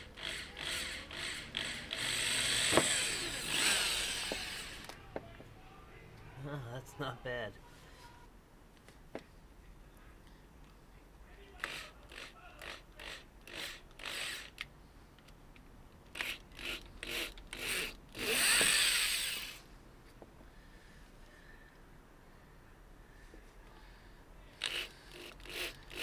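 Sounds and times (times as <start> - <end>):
power drill boring through plastic: 0.0 - 5.0, 11.6 - 14.6, 16.1 - 19.6, 24.6 - 26.0.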